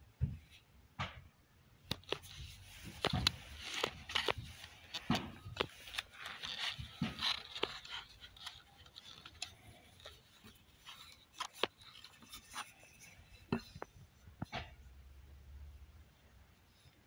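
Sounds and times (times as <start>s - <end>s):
leather rustling and scraping: 2.0s - 14.0s.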